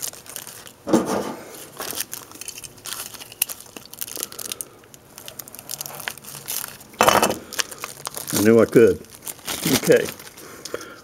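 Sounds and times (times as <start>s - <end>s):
package being torn and crinkled: 0.0s - 0.9s, 1.5s - 10.8s.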